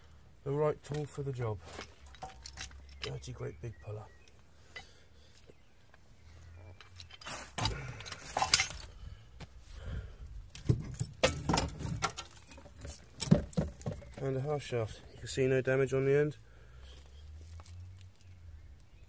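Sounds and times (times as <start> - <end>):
metal clinking and knocking: 1.7 - 3.1, 6.8 - 8.9, 10.6 - 14.2.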